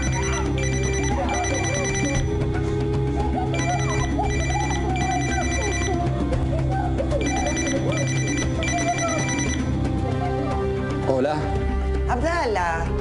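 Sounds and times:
mobile phone ringtone: 0.0s - 2.4s, 3.5s - 6.2s, 7.2s - 9.8s
tense background music: 0.0s - 13.0s.

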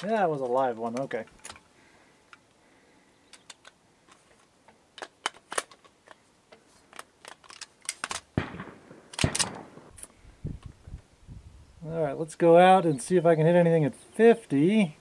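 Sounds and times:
metallic clicks of rifle handling: 0.0s - 1.7s, 2.3s - 2.6s, 3.2s - 10.8s.

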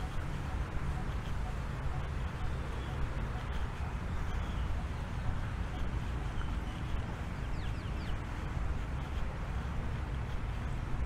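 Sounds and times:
bird chirping: 0.0s - 8.4s
low outdoor rumble: 0.0s - 11.0s.

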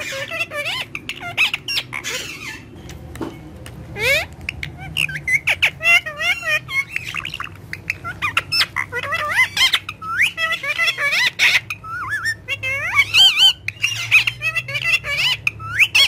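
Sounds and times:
parrot squawking and whistling: 0.0s - 2.7s, 3.9s - 16.0s.

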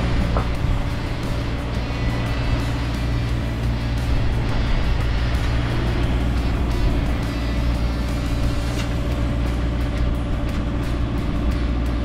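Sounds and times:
boat engine running: 0.0s - 12.0s
water noise: 0.0s - 12.0s
wind: 0.0s - 12.0s.

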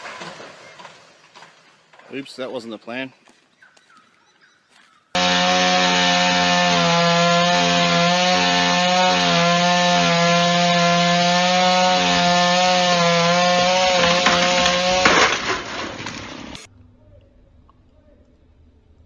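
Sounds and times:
chainsaw cutting: 5.2s - 16.7s
wood cracking: 5.2s - 16.7s.

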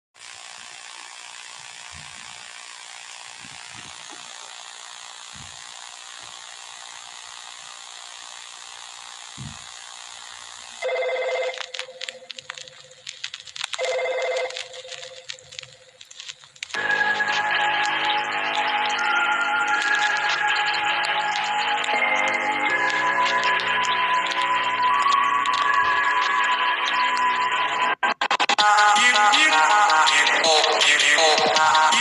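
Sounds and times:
steady hiss: 0.2s - 28.0s, 28.6s - 32.0s
sharp clicks: 9.3s - 32.0s
telephone ringing: 10.8s - 13.1s, 13.7s - 16.0s.

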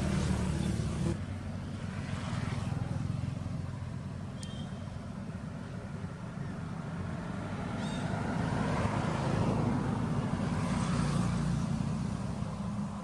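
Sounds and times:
vehicle passing by: 0.0s - 4.2s, 5.9s - 13.0s.

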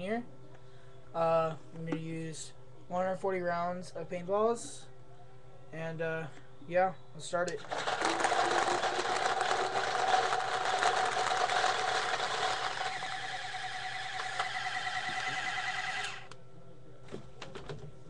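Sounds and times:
paintballs rattling: 7.6s - 15.7s
electric motor whirring: 7.7s - 16.3s.

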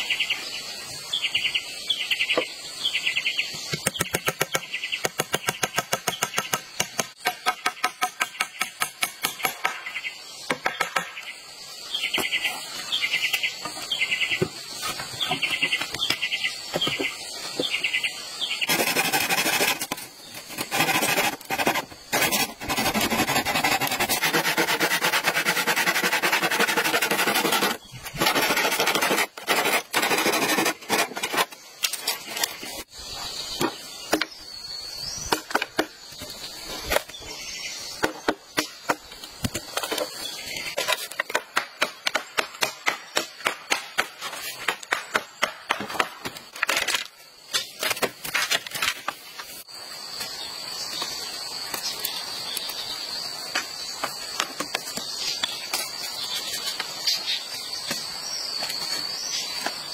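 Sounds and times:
machete chopping bamboo: 3.8s - 11.2s, 40.8s - 49.0s.

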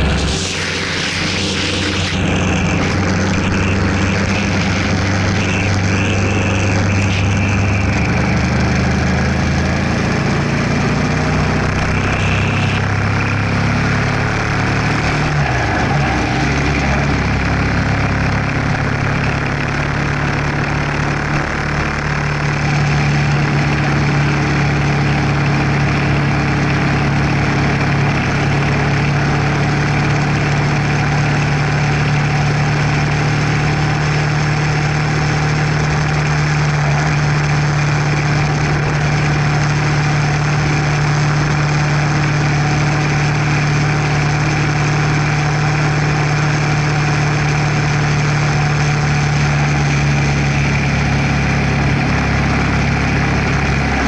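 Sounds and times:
wind rush: 0.0s - 5.4s
motorcycle engine cruising: 0.0s - 54.0s.

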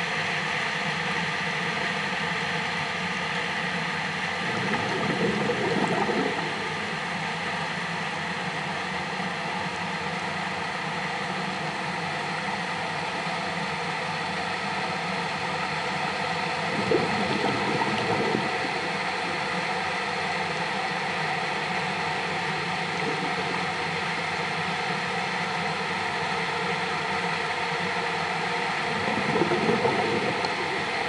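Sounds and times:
underwater mechanical hum: 0.0s - 31.0s
water gurgling and bubbling: 4.3s - 7.3s, 16.5s - 25.1s, 28.6s - 31.0s.

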